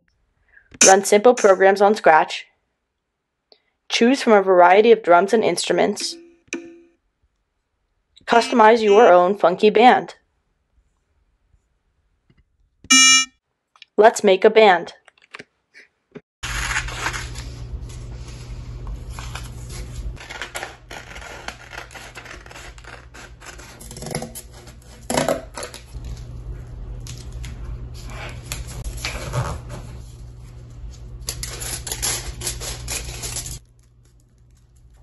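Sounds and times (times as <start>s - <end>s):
low electrical hum: 16.4s - 35.0s.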